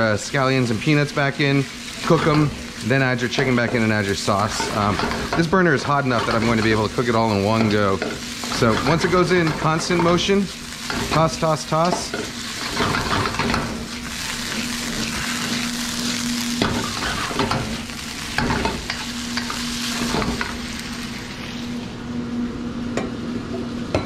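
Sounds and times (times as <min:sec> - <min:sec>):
chicken sizzling in a wok: 0:00.0 - 0:24.0
spatula scraping and knocking wok: 0:01.6 - 0:20.7.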